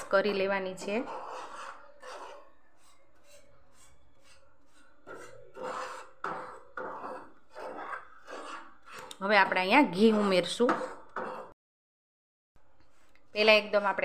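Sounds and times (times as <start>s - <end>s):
spatula scraping flour in pan: 0.0s - 11.6s, 12.8s - 14.0s.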